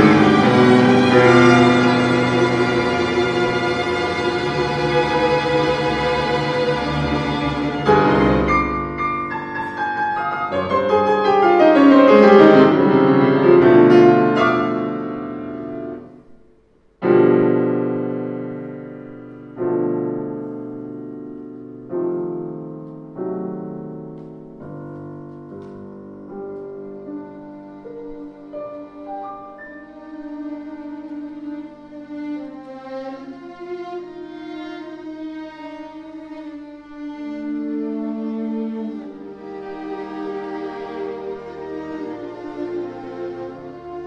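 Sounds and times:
piano fast notes: 0:00.0 - 0:16.3, 0:17.0 - 0:31.6
piano chords ringing: 0:00.0 - 0:32.2.

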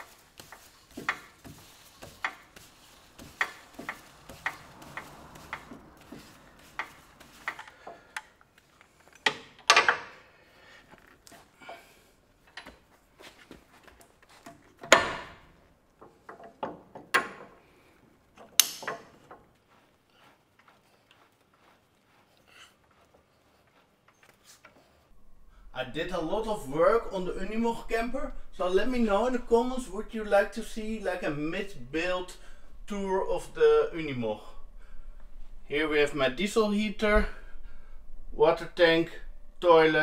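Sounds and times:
metal clanks: 0:00.0 - 0:12.9, 0:18.3 - 0:19.5.

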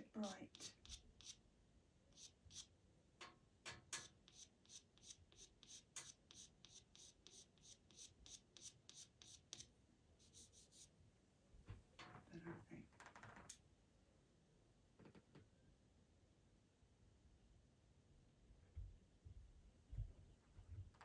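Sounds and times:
pencil scratching on paper: 0:00.0 - 0:01.4, 0:02.1 - 0:02.7, 0:03.7 - 0:10.9.

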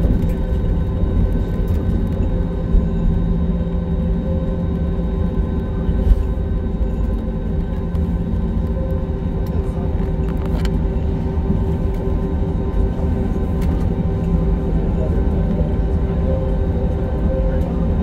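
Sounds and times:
airliner cabin rumble: 0:00.0 - 0:18.0
jet engine whine: 0:00.0 - 0:18.0.

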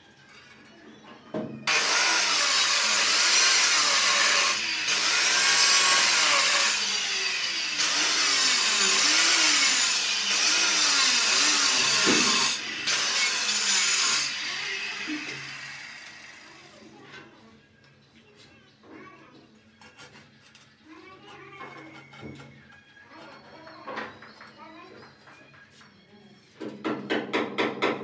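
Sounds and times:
electric cutter grinding tile: 0:01.7 - 0:16.7.

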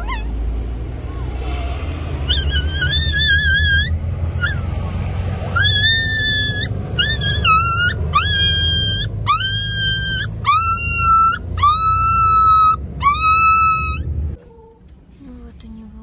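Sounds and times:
puppy screaming: 0:00.0 - 0:00.4, 0:02.2 - 0:14.1.

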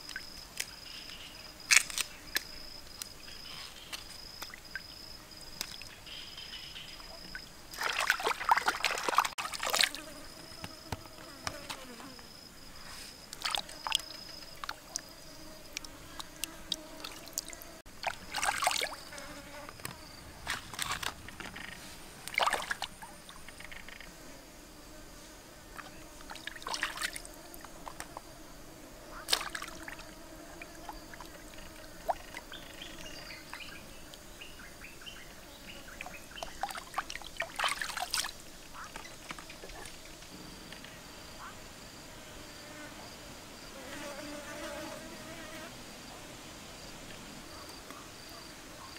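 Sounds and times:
insects buzzing: 0:00.0 - 0:48.9
water splashing: 0:07.1 - 0:10.0, 0:13.4 - 0:15.1, 0:17.0 - 0:19.1, 0:22.2 - 0:23.4, 0:25.8 - 0:28.0, 0:29.2 - 0:31.4, 0:36.4 - 0:40.1.

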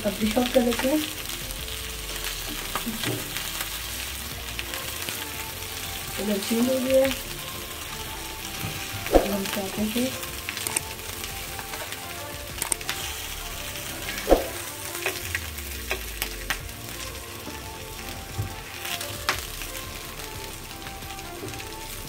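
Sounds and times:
chicken sizzling in oil: 0:00.0 - 0:22.0.

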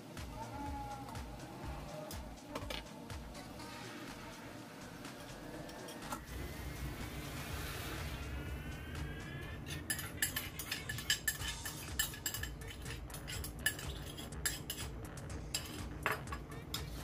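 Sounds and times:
metal spatula scraping a wok: 0:05.3 - 0:06.3, 0:09.5 - 0:17.0.

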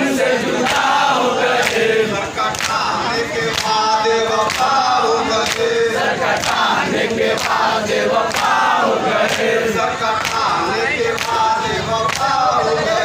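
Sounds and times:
crowd of men chanting: 0:00.0 - 0:13.0.

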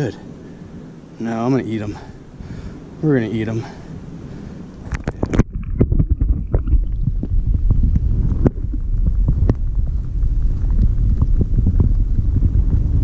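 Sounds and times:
underwater rumble of moving water: 0:00.5 - 0:13.0
small underwater clicks and pops: 0:04.8 - 0:11.4.

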